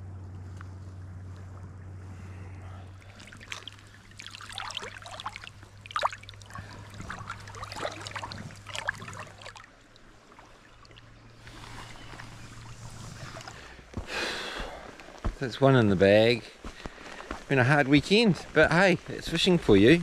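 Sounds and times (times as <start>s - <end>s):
river water splashing: 0.6s - 15.3s.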